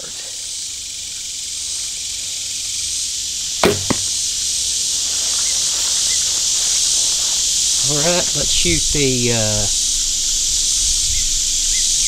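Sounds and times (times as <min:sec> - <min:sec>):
arrow striking foam target: 0:03.6 - 0:04.2.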